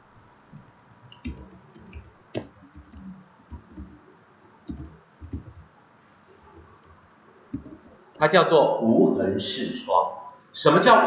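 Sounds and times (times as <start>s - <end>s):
computer keyboard typing: 1.1s - 5.7s, 6.4s - 8.2s.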